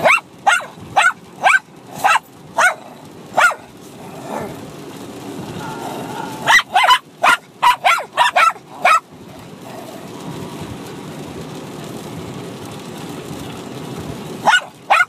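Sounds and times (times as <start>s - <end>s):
dogs barking: 0.0s - 4.6s, 5.5s - 9.9s, 14.4s - 15.0s.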